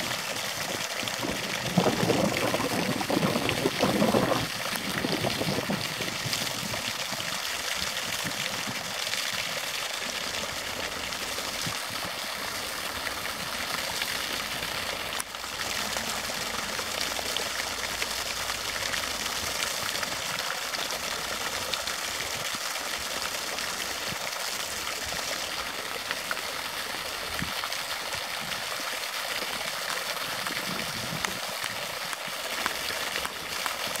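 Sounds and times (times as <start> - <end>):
stream water splashing: 0.0 - 34.0.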